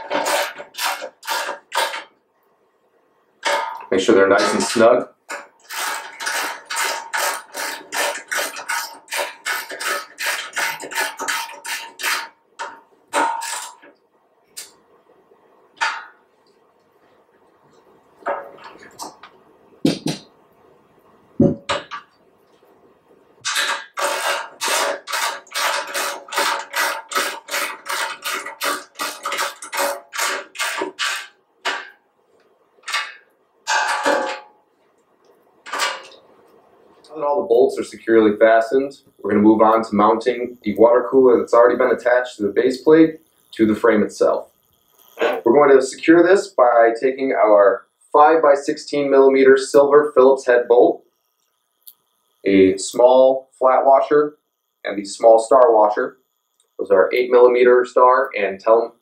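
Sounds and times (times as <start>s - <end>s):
ratchet wrench ratcheting: 5.6s - 12.3s, 23.4s - 31.3s.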